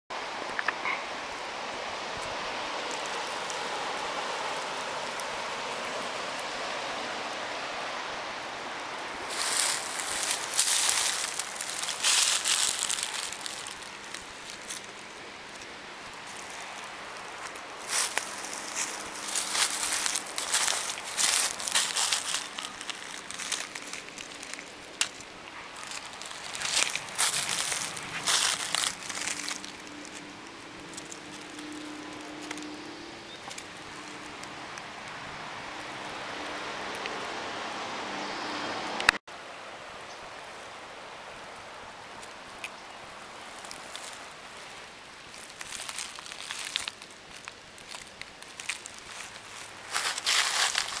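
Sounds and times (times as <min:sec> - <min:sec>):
quiet steady hiss: 0:00.1 - 0:38.4
footsteps crunching through dry leaves: 0:09.2 - 0:35.6, 0:43.1 - 0:51.0.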